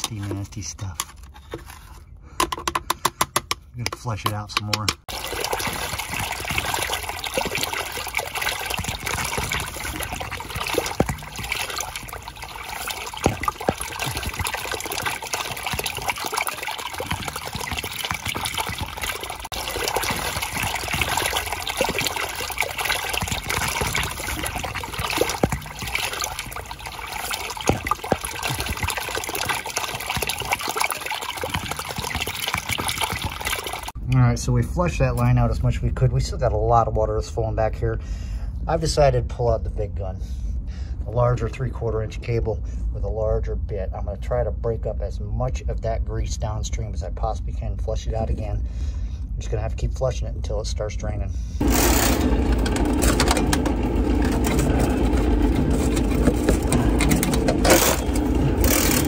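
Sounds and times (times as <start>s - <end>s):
water splashing onto ground: 5.0s - 34.0s, 51.6s - 59.0s.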